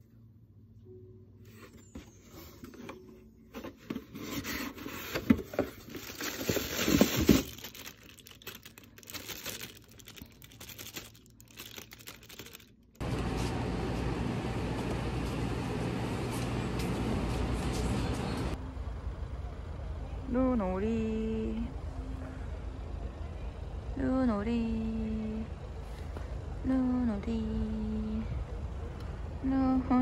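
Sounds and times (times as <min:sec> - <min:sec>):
outdoor traffic rumble: 0:00.0 - 0:30.0
scraping and crinkling handling: 0:01.5 - 0:13.6.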